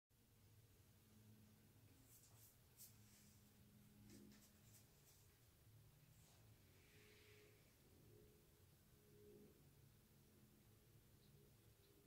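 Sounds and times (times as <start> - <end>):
faint low hum: 0.2 - 12.0.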